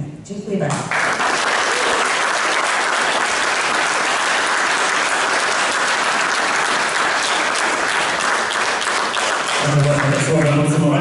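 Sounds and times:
audience applauding: 0.9s - 10.8s.

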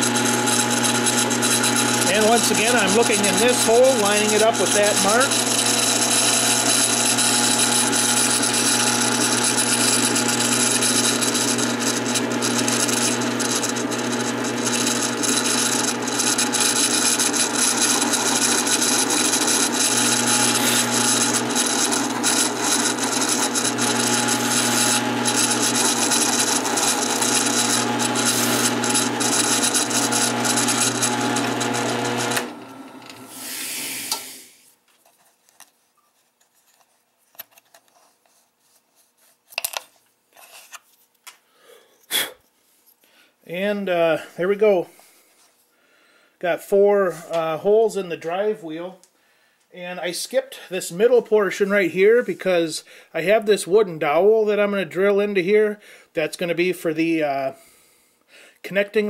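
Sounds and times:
crackling of wood cutting: 0.0s - 34.3s
drill press running: 0.0s - 34.5s.

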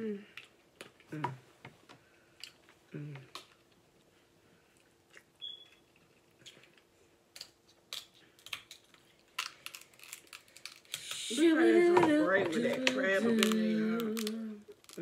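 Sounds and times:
crab shells cracking: 6.4s - 11.2s, 13.4s - 15.0s.

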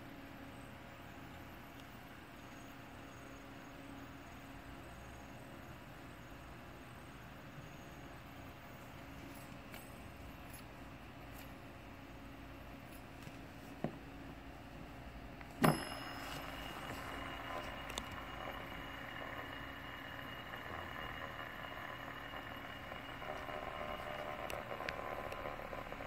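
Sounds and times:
fidget spinner whirring: 15.6s - 26.0s.

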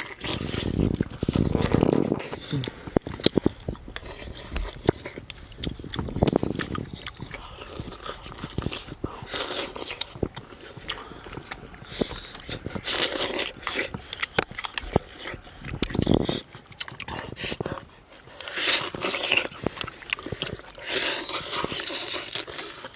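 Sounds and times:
person slurping soup: 0.0s - 17.8s
person chewing: 0.0s - 22.9s.

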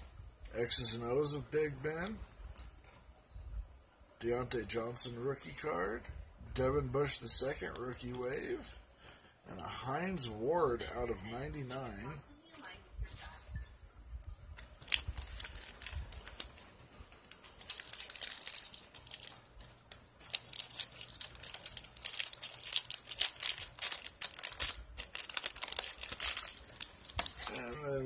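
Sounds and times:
plastic packaging crinkling: 14.5s - 28.0s.

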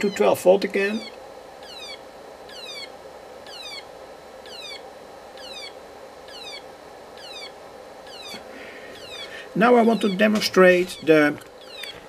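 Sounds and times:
electronic siren sweeping down: 4.4s - 4.8s.

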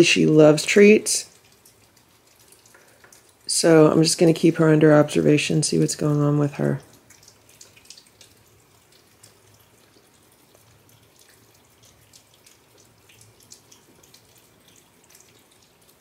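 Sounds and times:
cats eating wet smacking: 1.2s - 4.1s, 6.8s - 16.0s.

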